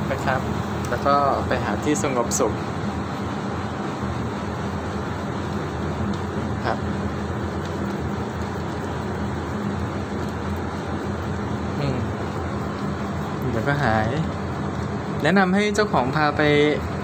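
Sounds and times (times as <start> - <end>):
motor humming: 0.0 - 17.0.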